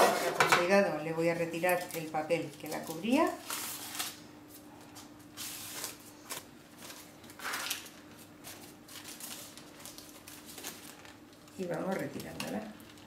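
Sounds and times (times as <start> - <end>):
paper crinkle: 1.6 - 13.0
paper lining rustling: 5.4 - 13.0.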